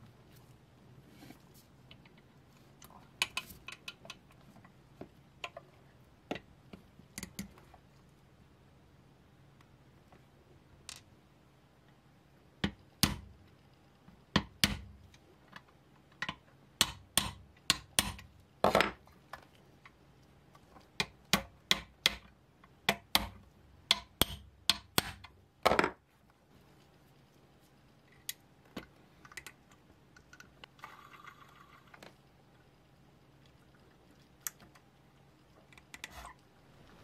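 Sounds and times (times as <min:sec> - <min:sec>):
small hard objects clicking and knocking: 0:28.2 - 0:32.2.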